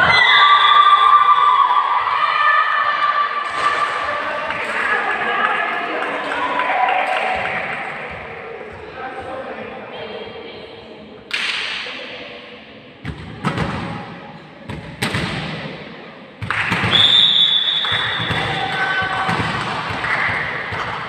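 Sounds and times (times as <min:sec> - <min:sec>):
volleyball thumps in a hall: 0:00.0 - 0:21.0
high whistle blast: 0:16.9 - 0:18.6.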